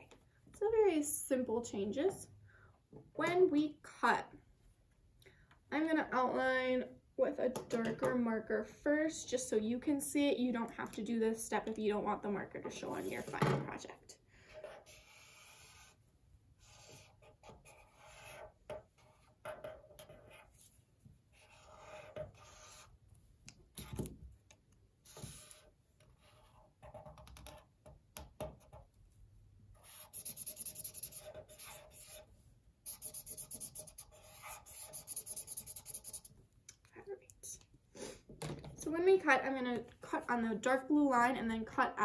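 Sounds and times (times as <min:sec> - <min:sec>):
marker scratching on cardboard: 0:12.9 - 0:13.4, 0:14.6 - 0:16.0, 0:16.6 - 0:23.0, 0:25.0 - 0:27.5, 0:29.8 - 0:36.4.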